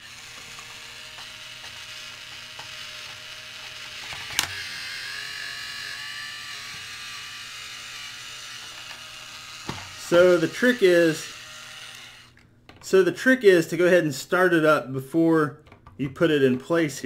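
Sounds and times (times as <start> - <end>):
toy drill motor whirring: 0.0 - 12.4.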